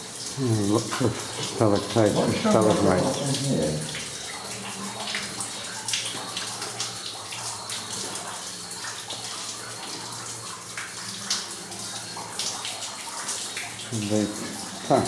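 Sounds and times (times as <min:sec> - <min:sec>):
running water hiss: 0:00.0 - 0:15.0.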